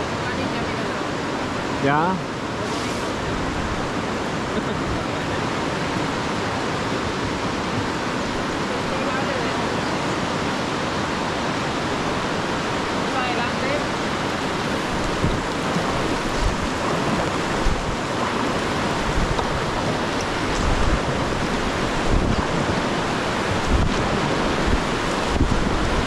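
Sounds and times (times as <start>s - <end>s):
river water rushing: 0.0s - 26.0s
wind buffeting microphone: 9.7s - 26.0s.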